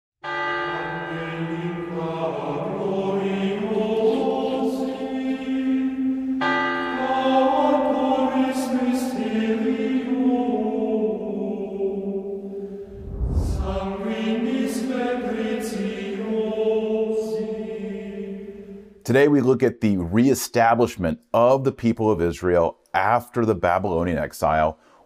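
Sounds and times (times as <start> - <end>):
choir singing chant-like notes: 0.6 - 19.0.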